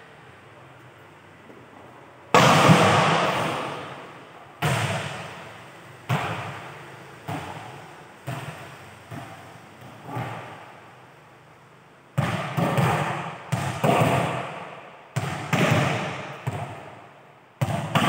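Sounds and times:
volleyball bouncing in hall: 0:02.2 - 0:11.0, 0:12.0 - 0:18.0
volleyball smacking and bouncing: 0:02.3 - 0:05.4, 0:06.0 - 0:10.8, 0:12.1 - 0:18.0.

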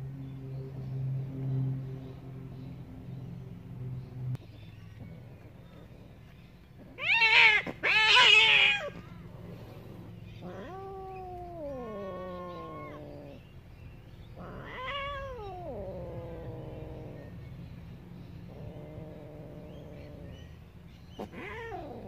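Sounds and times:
cats yowling: 0:06.8 - 0:13.4, 0:14.3 - 0:17.3, 0:18.5 - 0:20.5, 0:21.1 - 0:22.0.

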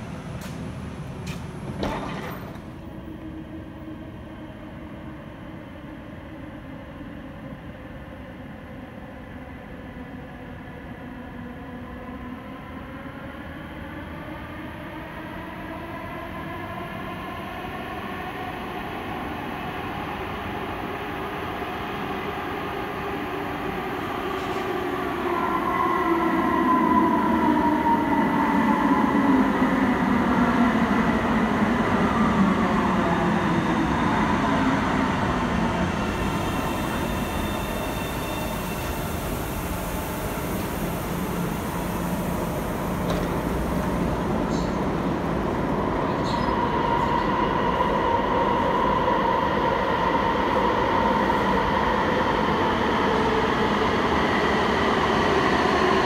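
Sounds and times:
train braking to a stop: 0:15.0 - 0:56.0.

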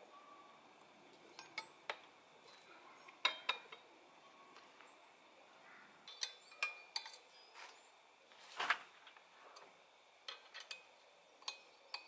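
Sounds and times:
light metallic clicks and clinks: 0:01.3 - 0:03.8, 0:06.0 - 0:07.4, 0:10.3 - 0:12.0.

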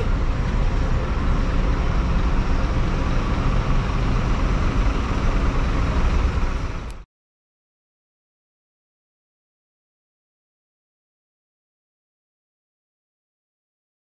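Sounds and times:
car and bus engines rumbling: 0:00.0 - 0:07.0
tyres on the road: 0:00.0 - 0:07.0.

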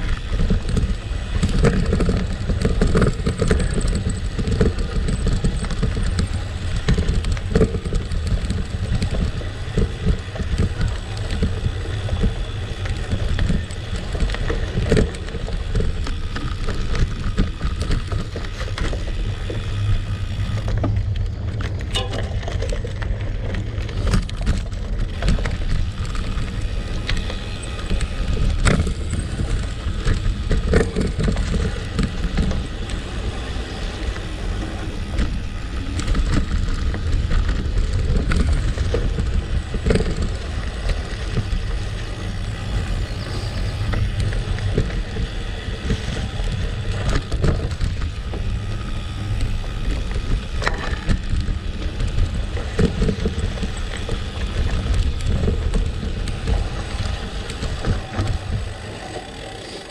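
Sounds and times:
stones clicking and bike rattle: 0:00.0 - 0:59.9
tyres rolling on gravel: 0:00.0 - 0:59.9
wind rumble on microphone: 0:00.0 - 0:59.9.

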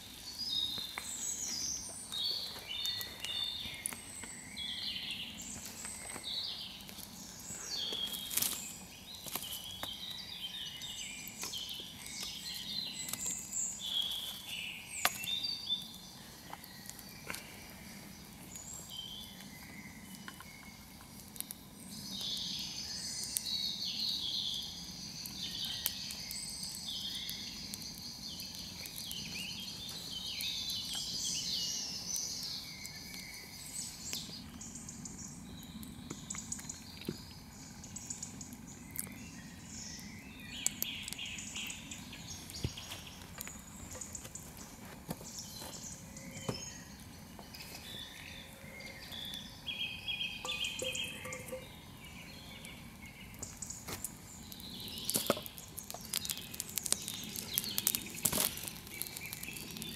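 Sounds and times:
campfire crackling and popping: 0:00.0 - 0:48.3, 0:48.9 - 0:59.9
birds singing and calling: 0:00.0 - 0:59.9
insects chirping: 0:00.0 - 0:59.9.

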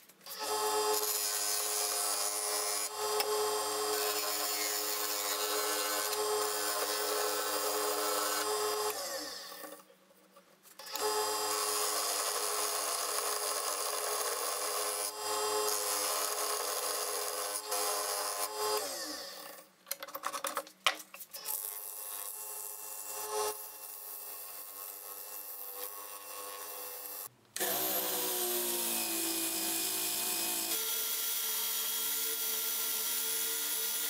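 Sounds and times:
wood lathe motor humming: 0:24.8 - 0:34.0.

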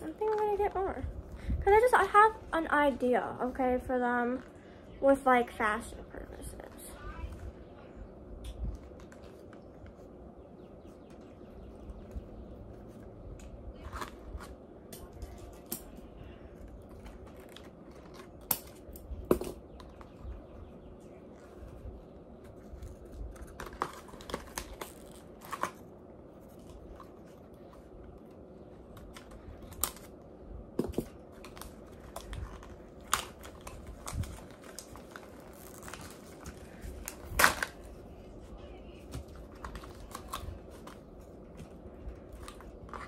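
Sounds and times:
toy packaging rustling and crinkling: 0:22.4 - 0:27.9, 0:30.9 - 0:38.1, 0:39.0 - 0:43.0.

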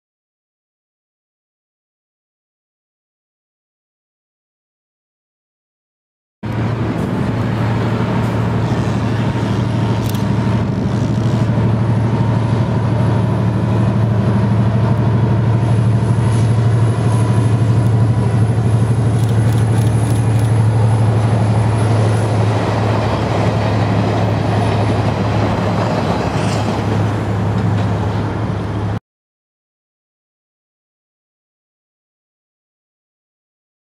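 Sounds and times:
diesel locomotive engine drone: 0:06.4 - 0:29.0.

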